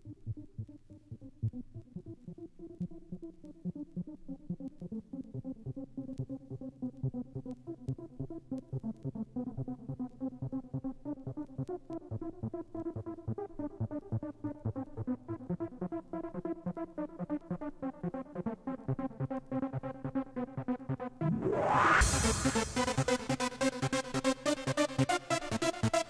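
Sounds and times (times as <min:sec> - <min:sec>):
electronic dance music: 0:21.2 - 0:23.2.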